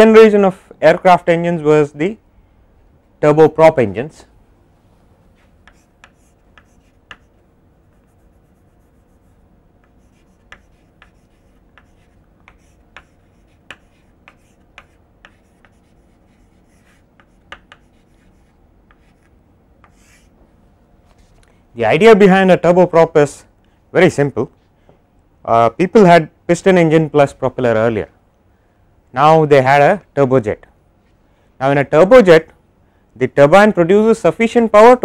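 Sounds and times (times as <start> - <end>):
chalk writing on blackboard: 5.3 - 20.3.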